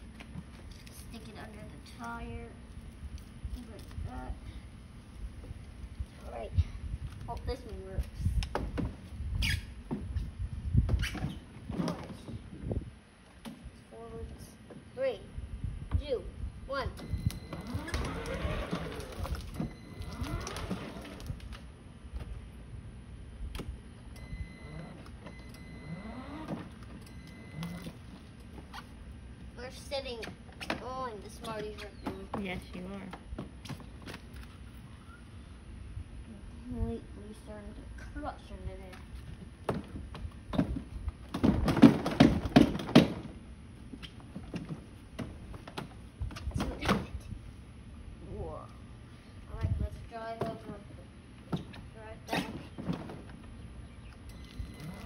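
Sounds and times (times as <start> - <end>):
plastic wheels rolling on concrete: 17.4 - 21.7, 39.2 - 45.7
electric toy motor whining: 17.5 - 21.2
knocks and clunks from ride-on toy car: 39.6 - 43.4.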